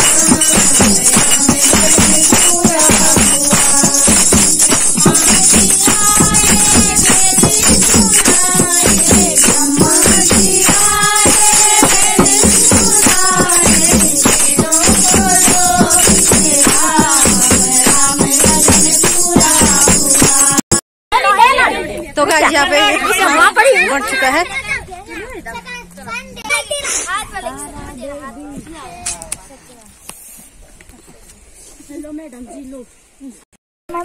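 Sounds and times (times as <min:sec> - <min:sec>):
women singing a hymn: 0:00.0 - 0:20.6
hand drum beating: 0:00.0 - 0:20.7
jingling hand percussion: 0:00.0 - 0:20.8.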